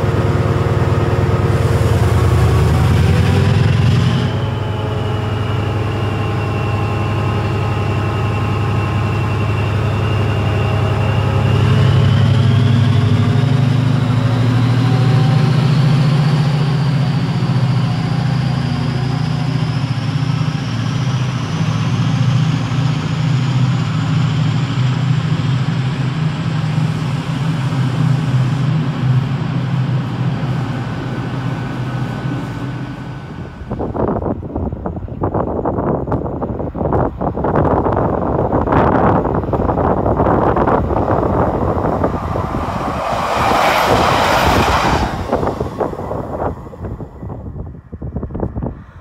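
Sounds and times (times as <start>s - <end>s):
locomotive engine drone: 0.0s - 49.0s
high rising whine: 38.3s - 47.8s.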